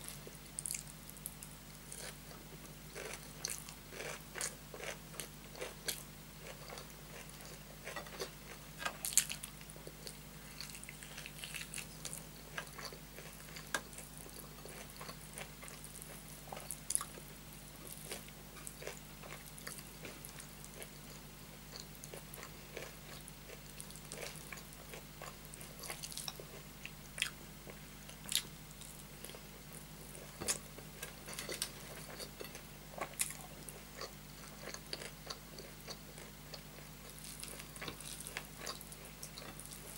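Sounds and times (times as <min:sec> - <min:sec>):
faint low hum: 0:00.0 - 0:39.9
close chewing with mouth smacks: 0:17.8 - 0:27.4, 0:30.2 - 0:39.9.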